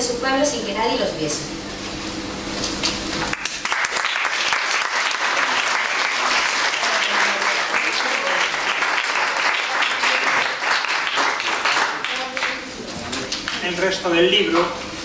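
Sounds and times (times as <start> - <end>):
audience applauding: 3.2 - 12.8.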